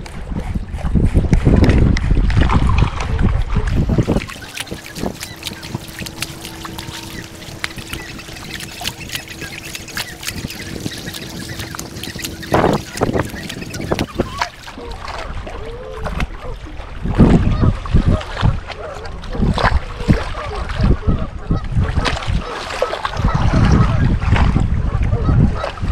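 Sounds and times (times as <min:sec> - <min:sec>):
water slapping boat hull: 0:00.0 - 0:25.9
wind buffeting microphone: 0:00.0 - 0:25.9
faint steady hum: 0:03.7 - 0:15.9.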